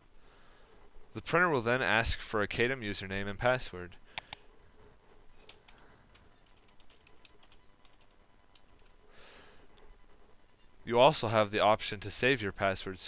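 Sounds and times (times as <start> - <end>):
computer keyboard typing: 5.4 - 9.0.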